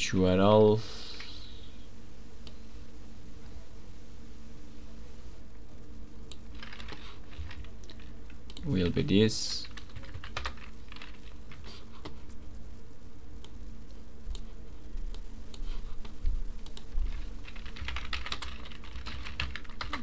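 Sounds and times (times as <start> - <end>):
faint low hum: 0.0 - 20.0
keyboard typing: 6.3 - 9.0, 9.6 - 12.2, 16.6 - 20.0.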